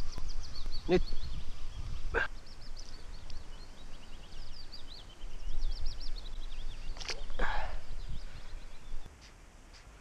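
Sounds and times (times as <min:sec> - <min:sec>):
songbirds singing: 0:00.0 - 0:09.1.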